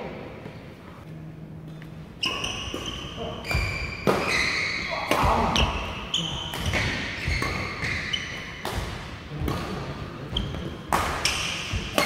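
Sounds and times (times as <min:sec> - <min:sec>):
shoes squeaking on floor: 0:01.6 - 0:08.6, 0:10.3 - 0:12.0
racket hitting shuttlecock: 0:02.2 - 0:09.8, 0:10.4 - 0:12.0.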